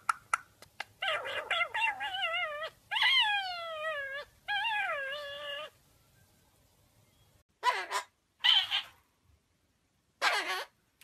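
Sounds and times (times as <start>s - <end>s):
parakeet wavering calls: 7.6s - 9.0s, 10.2s - 10.8s.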